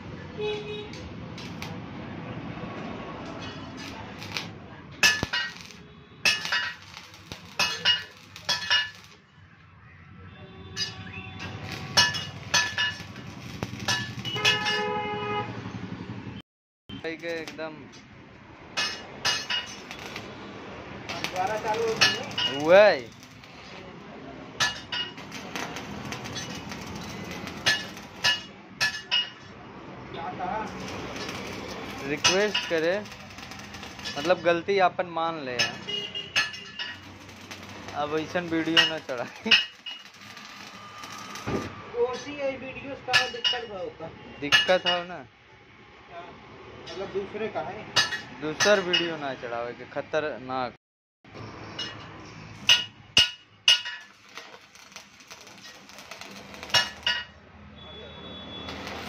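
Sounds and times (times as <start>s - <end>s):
crackling welding strikes: 0.9s - 1.8s, 3.2s - 9.3s, 10.8s - 14.9s, 17.0s - 17.9s, 18.8s - 23.9s, 24.6s - 29.2s, 30.6s - 34.8s, 35.6s - 42.4s, 51.8s - 57.4s, 58.5s - 59.0s
sharp metallic clinks: 21.1s - 23.5s, 24.6s - 29.4s, 30.7s - 34.6s, 35.6s - 41.5s, 51.8s - 57.4s.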